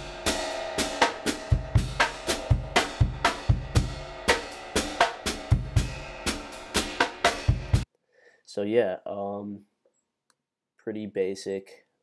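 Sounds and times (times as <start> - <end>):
distorted brushed drum beat: 0.0 - 7.8.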